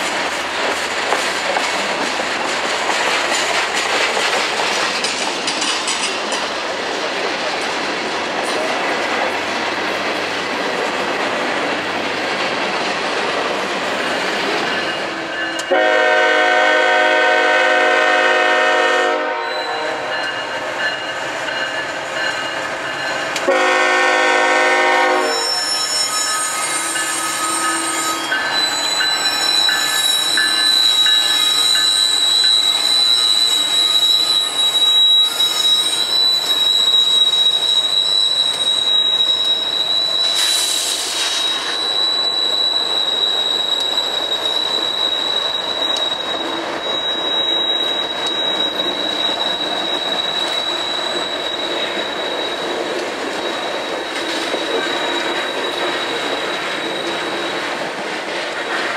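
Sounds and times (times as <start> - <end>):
diesel locomotives passing: 0.0 - 58.9
train wheel and rail noise: 0.0 - 58.9
high-pitched wheel squeal: 19.4 - 20.3, 24.9 - 57.8.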